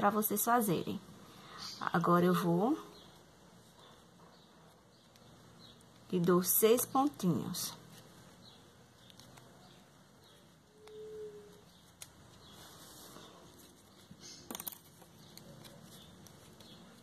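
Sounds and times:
faint rustling of ribbon: 7.0 - 17.0.

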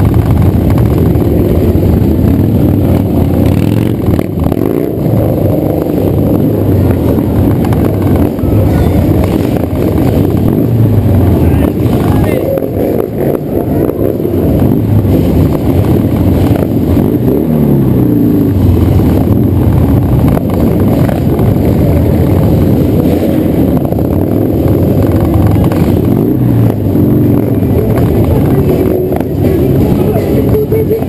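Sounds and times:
motorcycle engine accelerating: 0.0 - 31.0.

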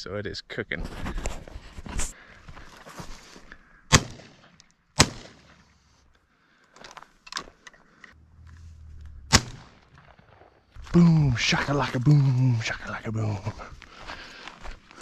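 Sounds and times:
shotgun shots: 3.9 - 5.7, 9.2 - 10.5.

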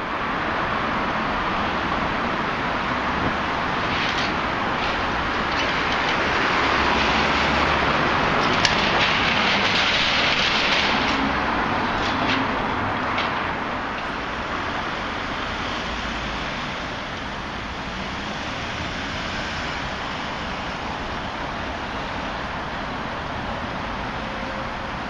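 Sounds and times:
passing road traffic: 0.0 - 25.0.

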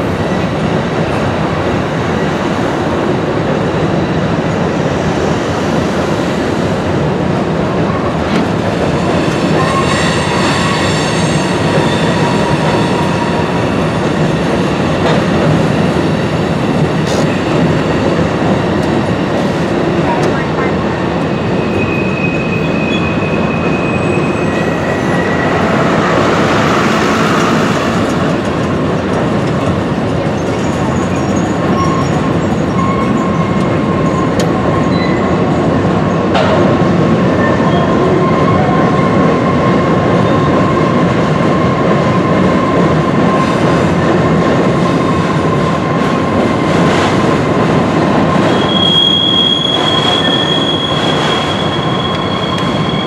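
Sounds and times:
high-pitched wheel squeal: 48.5 - 53.0
thin wheel squeal: 48.5 - 53.0.

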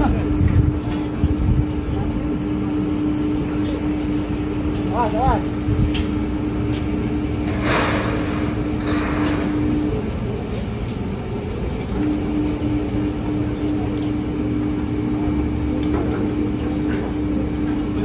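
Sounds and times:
steady mechanical hum: 0.0 - 18.0
strong wind on microphone: 0.2 - 2.2.

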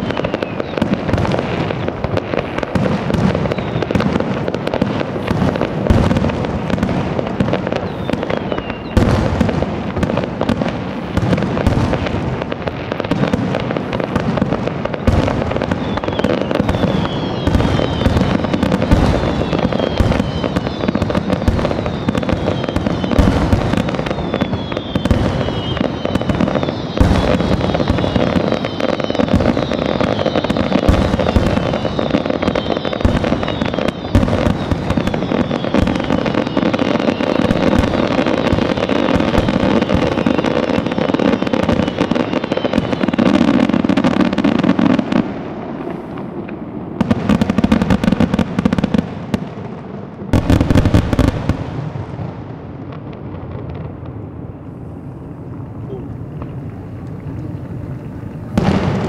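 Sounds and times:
falling whistles: 0.0 - 1.9, 3.3 - 4.1, 7.7 - 9.2, 14.8 - 45.0
firework shells bursting: 0.0 - 48.9.

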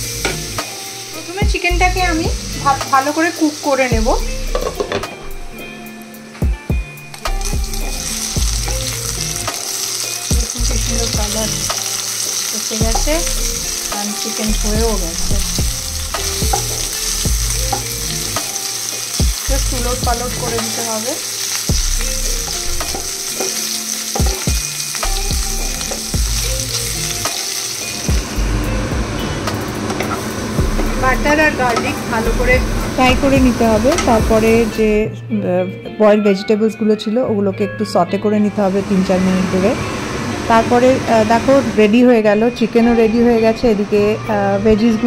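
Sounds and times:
chicken sizzling in a pan: 0.0 - 1.7, 2.4 - 4.9, 7.2 - 32.2.

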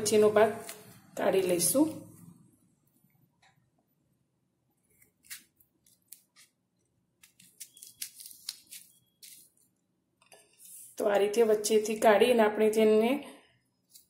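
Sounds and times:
knife scraping gourd: 4.9 - 6.6, 7.2 - 9.6.

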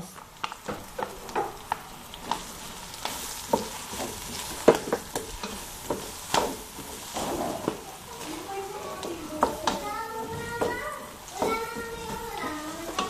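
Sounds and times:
food sizzling: 0.0 - 13.0
spatula stirring and scraping pot: 0.4 - 13.0.

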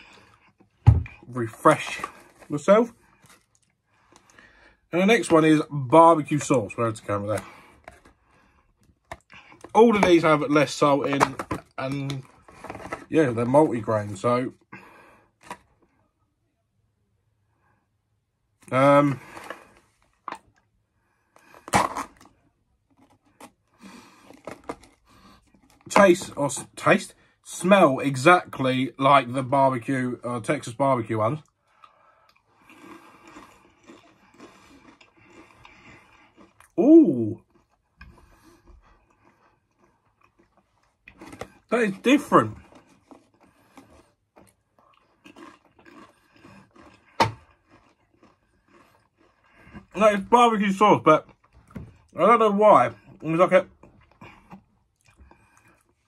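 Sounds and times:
chewing crisps: 21.3 - 26.8, 31.3 - 52.3, 52.9 - 56.0.

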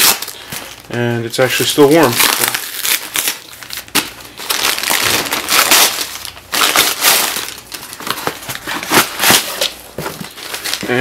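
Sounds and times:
crumpled newspaper crackling: 0.0 - 11.0
cardboard box crinkling: 2.0 - 11.0.

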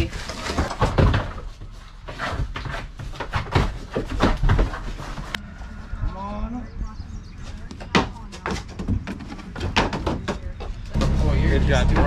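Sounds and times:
goats stepping on tarp floor: 0.0 - 5.4.

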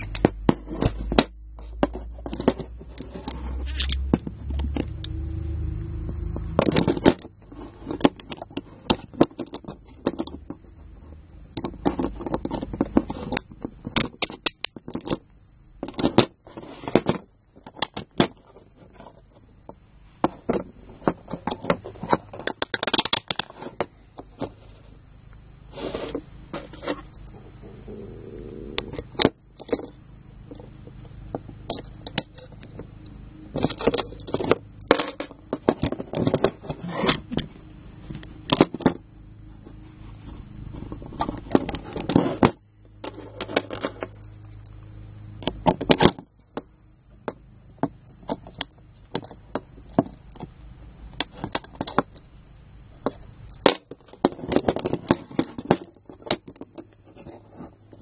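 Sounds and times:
handcuffs clicking open and shut: 3.7 - 4.0.

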